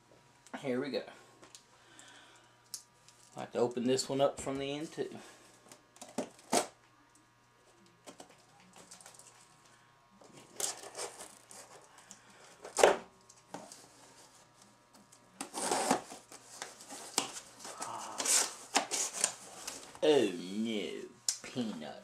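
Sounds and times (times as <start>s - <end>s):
blade scraping through cardboard: 10.4s - 11.8s, 15.4s - 17.2s
cardboard rustling: 15.4s - 20.0s.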